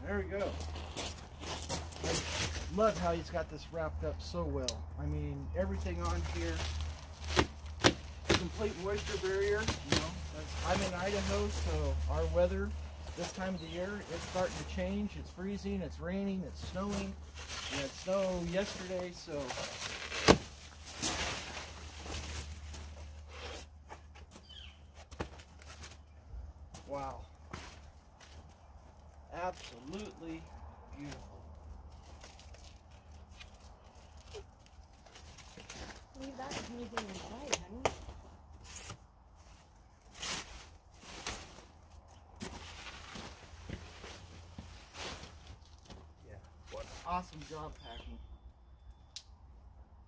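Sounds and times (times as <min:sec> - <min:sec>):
plastic wrap rustling and crinkling: 0:05.8 - 0:15.6, 0:16.6 - 0:23.3, 0:30.9 - 0:37.5
footsteps: 0:32.0 - 0:46.1.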